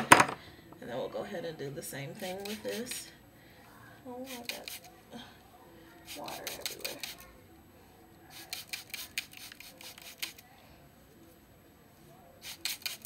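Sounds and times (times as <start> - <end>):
brush through wet hair: 8.3 - 10.4.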